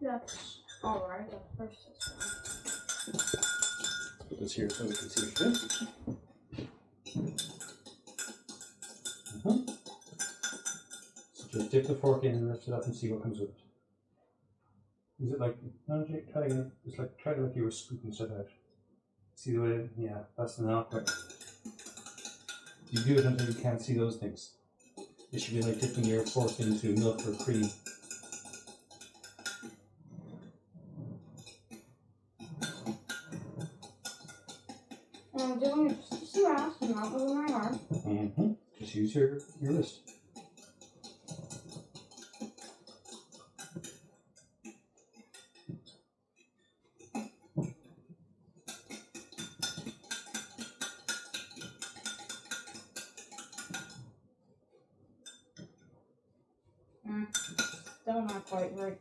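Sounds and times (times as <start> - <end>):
fork clinking against glass: 2.0 - 6.0, 7.1 - 12.4, 20.9 - 23.9, 24.8 - 29.8, 32.4 - 38.0, 39.4 - 44.5, 48.6 - 54.1, 57.3 - 58.4.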